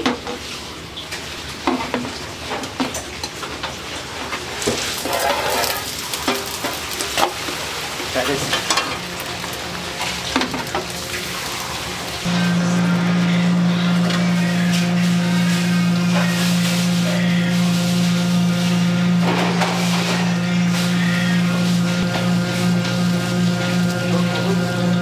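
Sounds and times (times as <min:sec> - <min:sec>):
egg sizzling in a frying pan: 0:04.4 - 0:12.3, 0:14.6 - 0:25.0
chopsticks scraping a pan: 0:04.9 - 0:06.8
low hum: 0:12.0 - 0:25.0.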